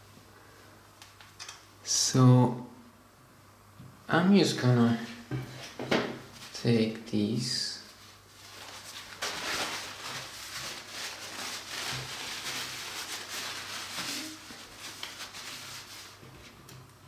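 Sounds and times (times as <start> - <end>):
rustling of things handled: 7.9 - 16.9.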